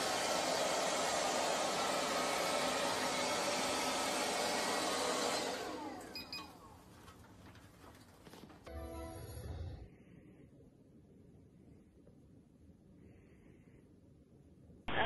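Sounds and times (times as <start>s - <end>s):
robot vacuum cleaner whirring: 0.0s - 6.6s.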